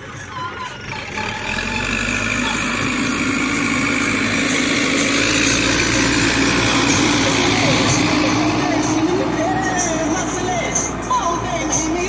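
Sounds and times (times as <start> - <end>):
backhoe diesel engine running: 0.0 - 12.0.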